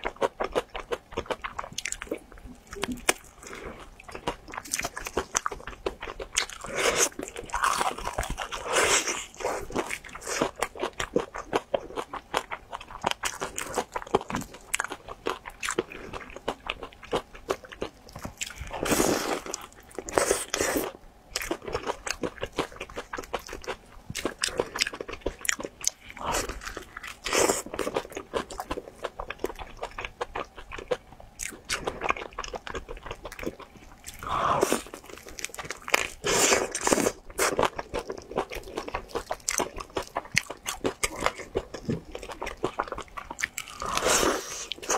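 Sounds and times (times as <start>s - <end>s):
crunching and chewing food: 0.0s - 44.9s.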